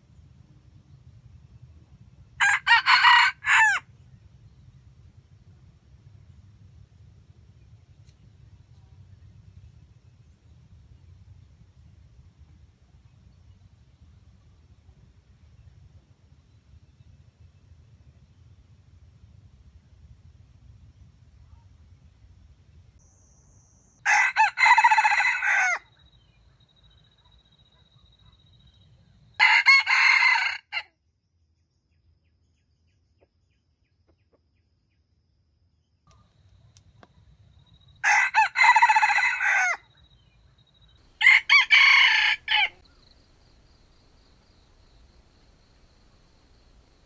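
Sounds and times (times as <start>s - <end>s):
rooster crowing: 2.4s - 3.9s, 24.0s - 25.9s, 29.4s - 30.9s, 38.0s - 39.8s, 41.1s - 43.0s.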